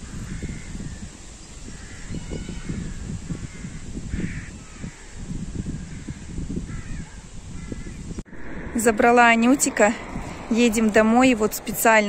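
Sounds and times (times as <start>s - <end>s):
crows cawing: 0.0s - 1.1s, 1.7s - 5.2s, 5.8s - 8.6s
uneven low rumble: 8.1s - 12.0s.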